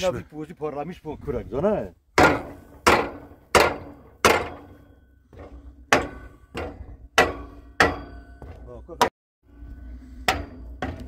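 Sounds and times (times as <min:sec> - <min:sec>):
sharp metallic striking blows: 0:02.2 - 0:05.1, 0:05.9 - 0:09.1.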